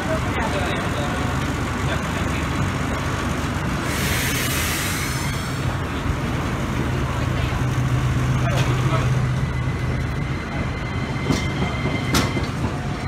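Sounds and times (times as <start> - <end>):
loud hiss: 3.8 - 5.8.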